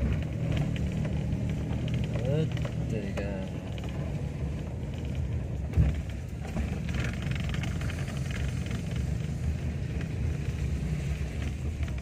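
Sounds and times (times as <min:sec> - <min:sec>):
car engine running: 0:00.0 - 0:12.0
tyre noise on wet road: 0:00.0 - 0:12.0.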